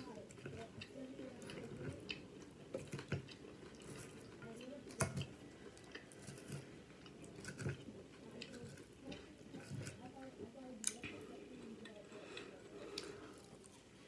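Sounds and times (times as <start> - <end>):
chewing and crunching food: 0.0 - 14.0.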